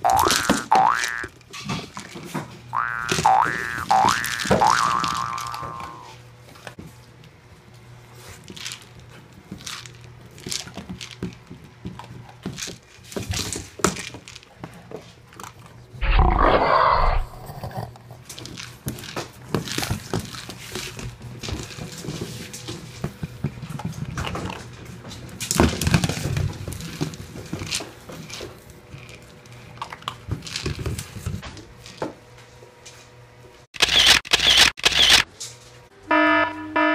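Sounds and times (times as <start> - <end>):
toy and paws knocking on tiles: 2.8 - 6.0
dogs growling: 16.0 - 18.2.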